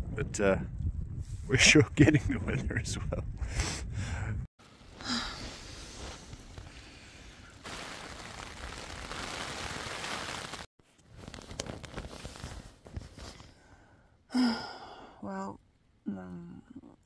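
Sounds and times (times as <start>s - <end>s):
strong wind gusting: 0.0s - 4.5s.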